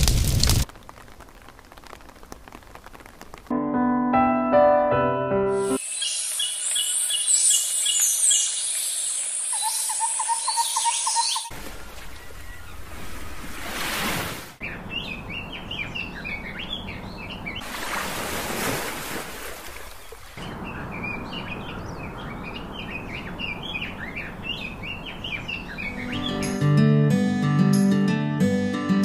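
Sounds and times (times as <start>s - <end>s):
small birds chirping: 5.8s - 12.9s, 14.6s - 17.6s, 19.9s - 26.6s.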